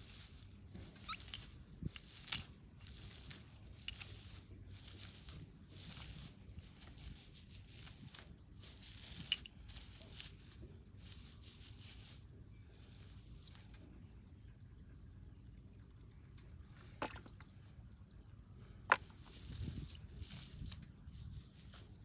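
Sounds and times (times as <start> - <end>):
nylon net rustling and crinkling: 0.0 - 12.1.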